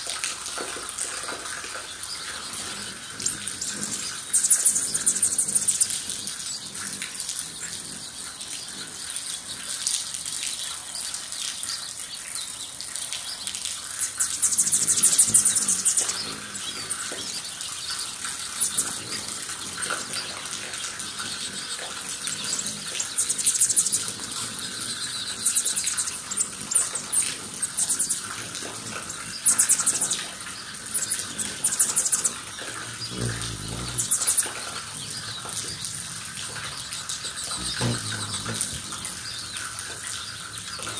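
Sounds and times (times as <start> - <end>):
buzzy bird trills: 14.1 - 28.3, 29.0 - 36.0, 36.6 - 40.8
hummingbird wings whirring: 18.5 - 34.9, 37.0 - 39.6.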